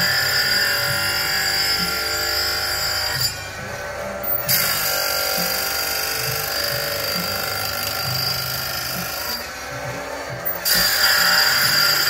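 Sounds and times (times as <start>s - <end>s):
grinder wheel whining on steel: 0.0s - 12.0s.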